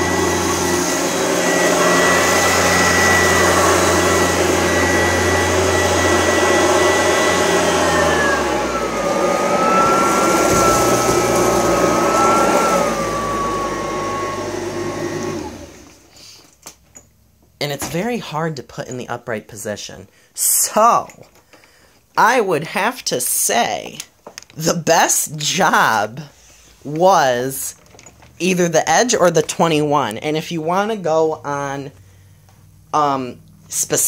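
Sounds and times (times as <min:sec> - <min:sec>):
vacuum cleaner motor whine: 0:00.0 - 0:16.1.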